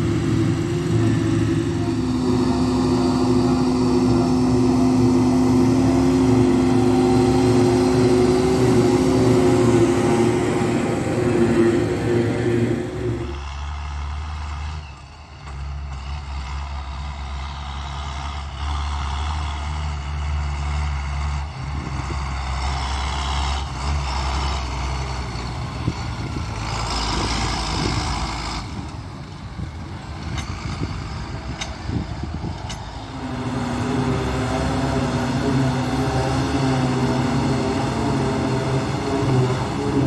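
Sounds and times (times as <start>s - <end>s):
tractor diesel engines droning: 0.0s - 40.0s.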